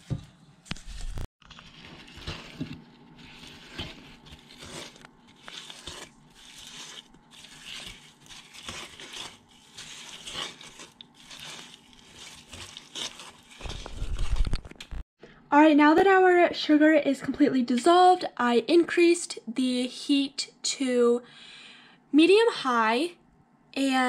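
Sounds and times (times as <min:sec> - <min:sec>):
spatula scraping in a pot: 0:00.9 - 0:14.5.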